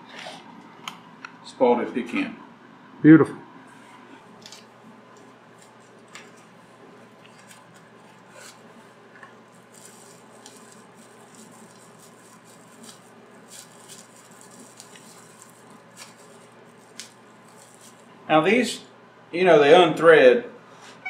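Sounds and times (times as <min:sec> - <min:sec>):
steady low hum: 0:00.0 - 0:21.0
plastic packet crinkling: 0:04.4 - 0:18.1.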